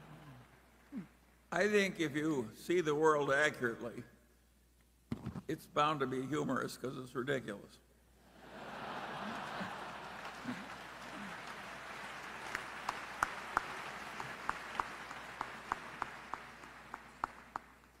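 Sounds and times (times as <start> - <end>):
audience laughter: 8.4 - 11.5
audience applauding: 8.4 - 18.0.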